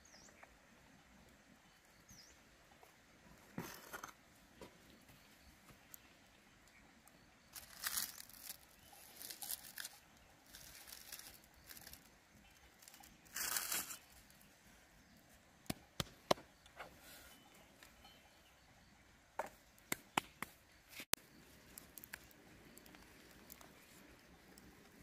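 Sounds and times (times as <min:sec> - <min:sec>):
leaves rustling and crinkling: 0:07.4 - 0:15.3, 0:20.9 - 0:25.0.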